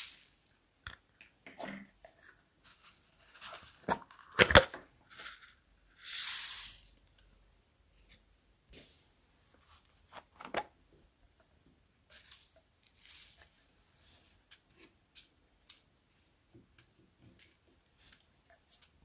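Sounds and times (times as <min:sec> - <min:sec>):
short hissing rustle: 0:06.0 - 0:07.0.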